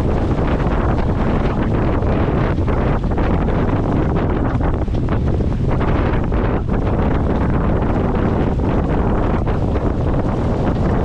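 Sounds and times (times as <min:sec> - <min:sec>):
water rushing along hull: 0:00.0 - 0:11.0
wind buffeting microphone: 0:00.0 - 0:11.0.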